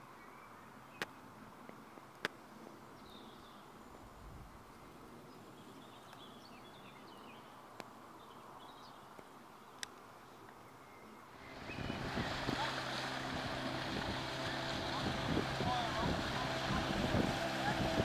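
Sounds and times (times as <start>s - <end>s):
distant birds chirping: 8.2s - 18.0s.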